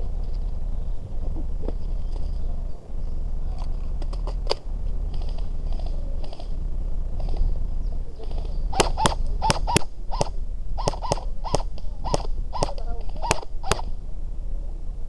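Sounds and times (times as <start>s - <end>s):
microphone handling noise: 0.0s - 2.5s
wind rumble on microphone: 0.0s - 15.0s
airsoft gun shots: 8.7s - 14.0s.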